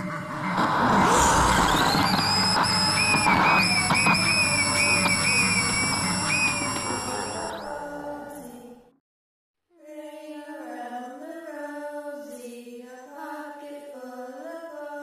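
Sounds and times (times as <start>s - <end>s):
music: 1.5s - 9.0s
person singing unaccompanied: 6.5s - 8.9s.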